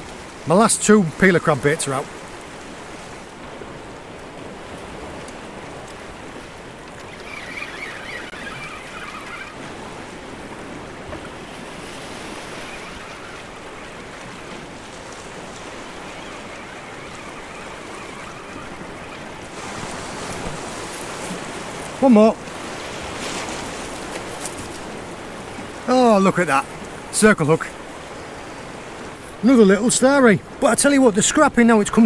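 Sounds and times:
waves washing over rocks: 0.0s - 32.0s.

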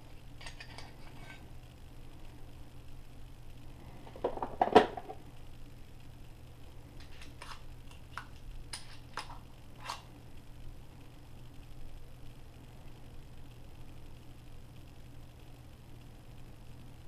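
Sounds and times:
metal parts clacking: 0.4s - 1.4s.

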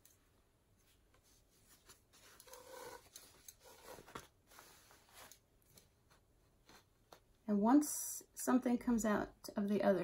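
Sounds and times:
fabric rustling and rubbing: 0.7s - 5.5s.

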